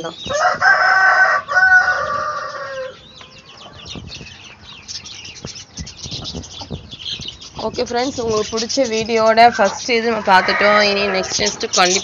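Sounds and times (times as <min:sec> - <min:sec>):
chicks peeping: 0:00.0 - 0:12.0
rooster crowing: 0:00.3 - 0:03.8, 0:09.6 - 0:11.5.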